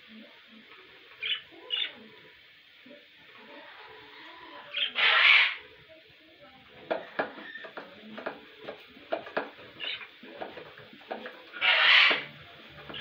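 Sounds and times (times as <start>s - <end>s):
budgerigars chirping: 4.7s - 5.6s, 11.6s - 12.3s.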